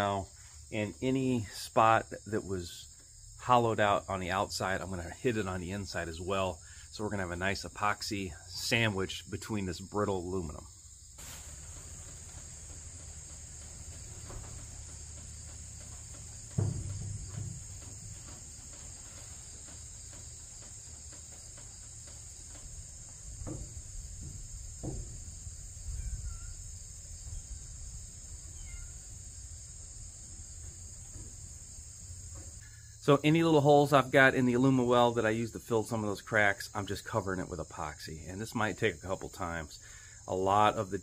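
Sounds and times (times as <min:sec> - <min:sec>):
insect chorus: 0:00.0 - 0:41.0
spatula knocking and scraping: 0:11.7 - 0:25.5.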